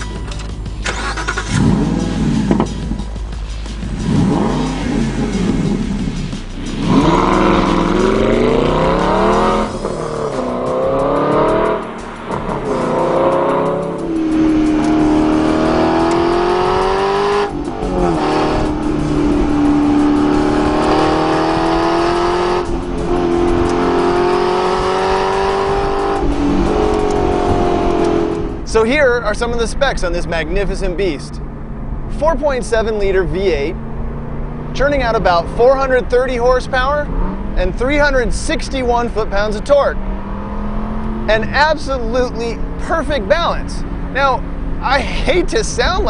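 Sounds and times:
car engine revving: 0.0s - 46.0s.

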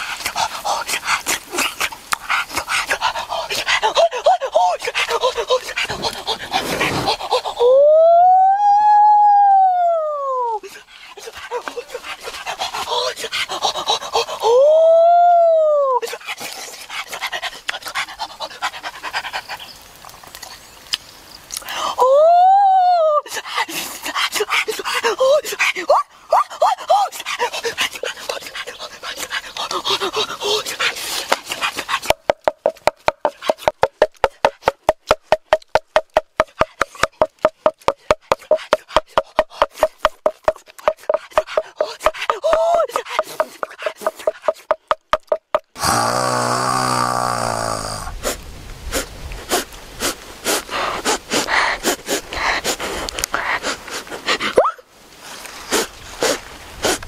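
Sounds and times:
huffing panting breaths: 0.0s - 7.6s, 10.6s - 14.5s, 16.0s - 19.8s, 23.3s - 32.2s, 38.3s - 44.8s, 48.2s - 54.6s, 55.7s - 57.0s
man crying ooh: 7.6s - 10.7s, 14.4s - 16.1s, 22.0s - 23.3s, 45.8s - 48.1s
wooden pestle pounding in mortar: 32.0s - 45.9s
mouth noises: 40.5s - 54.8s.

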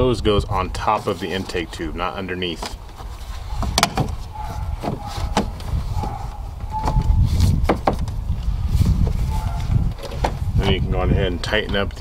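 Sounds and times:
plastic clicks and knocks: 3.6s - 4.2s.

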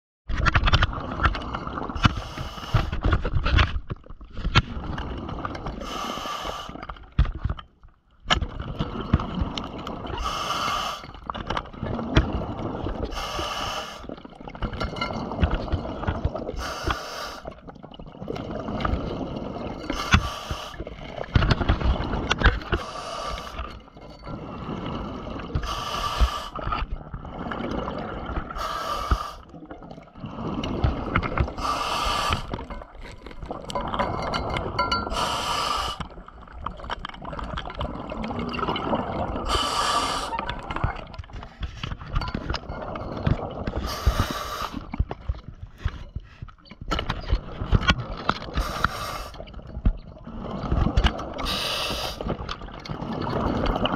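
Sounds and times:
exhaled bubbles underwater: 0.4s - 7.5s, 8.3s - 53.9s
diver breathing through regulator: 2.0s - 3.0s, 5.8s - 6.8s, 10.2s - 11.2s, 13.1s - 14.1s, 16.6s - 17.5s, 19.9s - 21.0s, 22.8s - 23.8s, 25.5s - 26.8s, 28.5s - 29.5s, 30.3s - 32.7s, 35.0s - 36.2s, 39.4s - 40.5s, 43.8s - 44.9s, 48.6s - 49.4s, 51.4s - 52.3s
clicks and scrapes of equipment: 2.8s - 4.7s, 44.8s - 49.0s.

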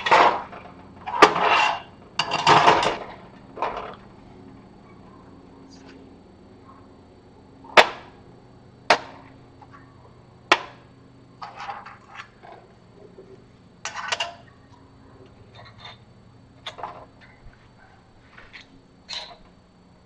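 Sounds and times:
metal clanks on steel bench: 0.0s - 4.0s.

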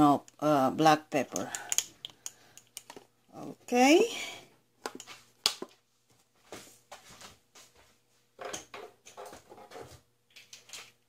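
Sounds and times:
soft kitchen knocks and rustles: 6.5s - 11.0s.

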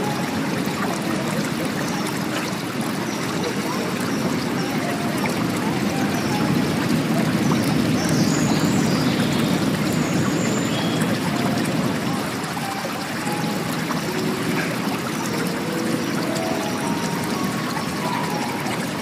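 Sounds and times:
water running and trickling: 0.0s - 19.0s.

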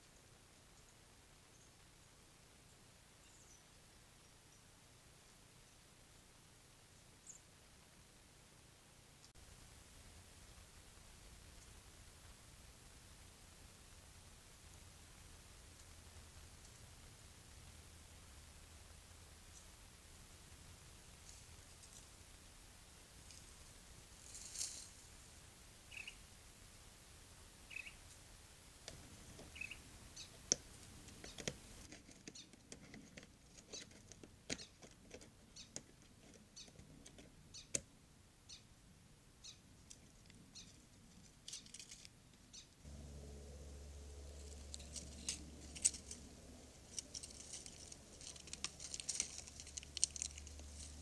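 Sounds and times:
light clicks and rustles: 24.2s - 25.0s, 39.8s - 42.4s, 44.2s - 51.0s
high bird chirps: 25.9s - 26.2s, 27.7s - 28.0s, 29.5s - 30.3s
low steady hum: 37.9s - 51.0s.

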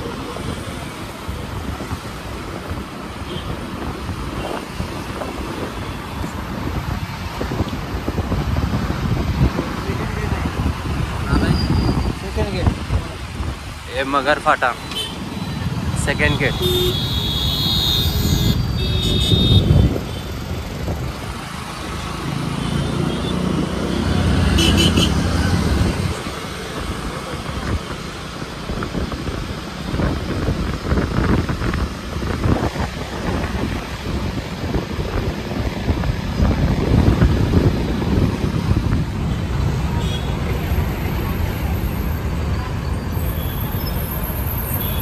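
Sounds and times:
road traffic: 0.0s - 45.0s
vehicles passing: 0.0s - 45.0s
wind buffeting microphone: 1.2s - 13.8s, 18.2s - 22.0s, 25.5s - 41.6s.

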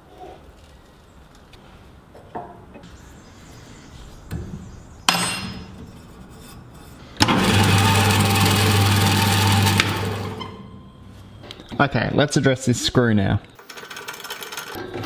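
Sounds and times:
metal clank: 5.1s - 6.0s
band saw running: 7.2s - 10.8s.

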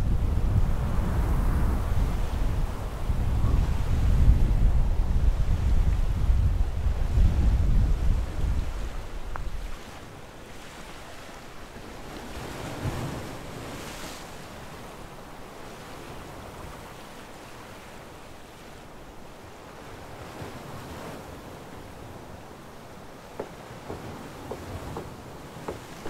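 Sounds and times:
rushing wind: 0.0s - 10.2s.

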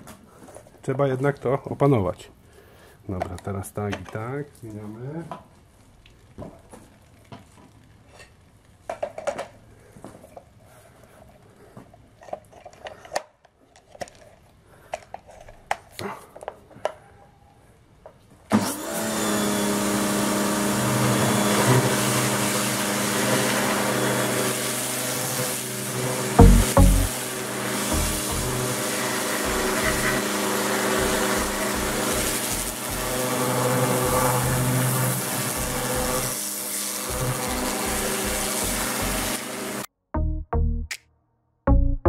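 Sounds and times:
pressure washer motor humming: 18.8s - 39.9s
water jet hissing on metal: 21.2s - 39.9s.

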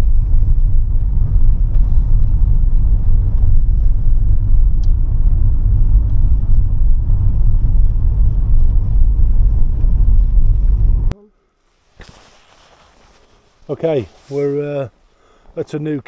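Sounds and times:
car driving on icy road: 0.0s - 11.2s.

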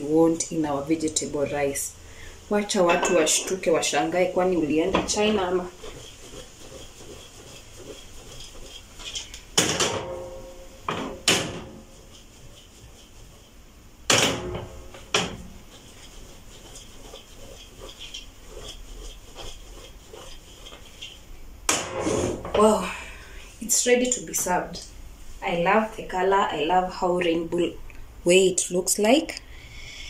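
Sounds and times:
metal pot clunking: 2.8s - 3.8s.

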